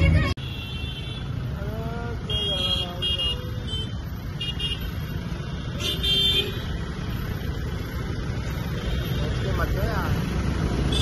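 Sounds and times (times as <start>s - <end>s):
traffic rumble: 0.0s - 11.0s
vehicle horns honking: 0.1s - 1.5s, 2.2s - 7.0s, 10.8s - 11.0s.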